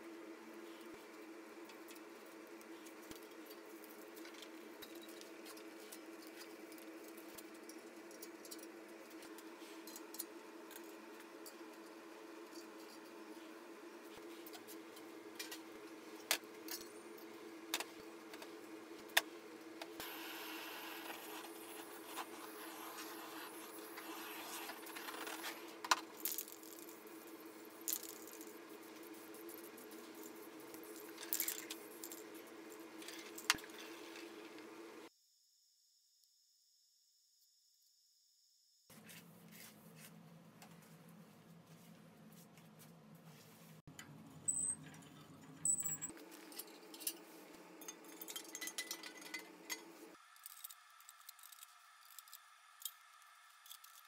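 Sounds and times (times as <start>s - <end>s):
spray paint can hissing: 20.0s - 25.6s
metal plates clinking: 47.8s - 49.9s.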